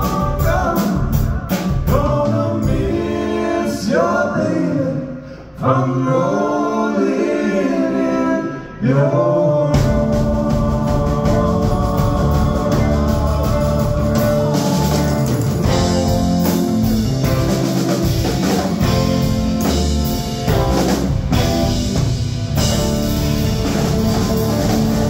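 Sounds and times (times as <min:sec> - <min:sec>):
drum kit beat: 0:00.0 - 0:03.4, 0:09.8 - 0:25.0
electric guitars: 0:09.8 - 0:25.0.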